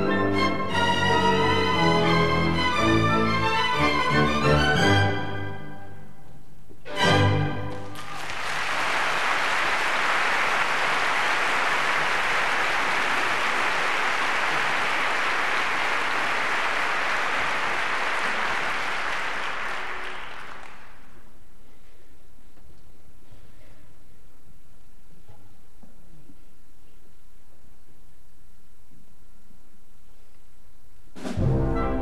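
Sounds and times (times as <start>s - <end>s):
audience applauding: 7.6s - 21.2s
orchestra final chord: 31.2s - 32.0s.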